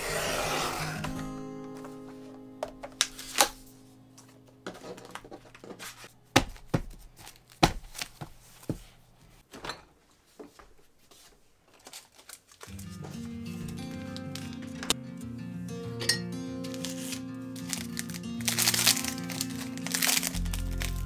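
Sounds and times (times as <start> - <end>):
paper rustling: 2.9 - 9.0, 10.4 - 13.3, 16.6 - 21.0.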